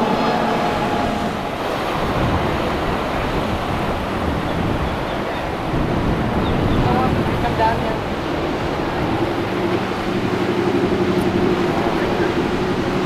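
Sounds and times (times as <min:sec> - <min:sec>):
surf and waves: 0:00.0 - 0:13.0
wind buffeting microphone: 0:00.0 - 0:13.0.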